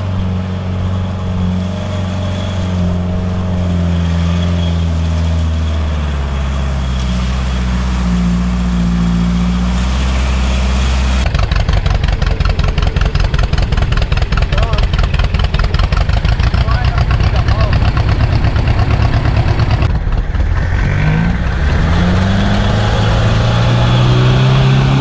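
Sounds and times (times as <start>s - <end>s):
vehicle engine running: 0.0s - 25.0s
engine idling with pulsing beat: 11.2s - 20.6s.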